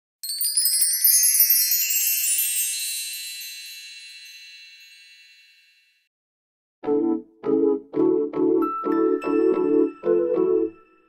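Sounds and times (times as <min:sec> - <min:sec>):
shimmering chime cascade: 0:00.2 - 0:06.1.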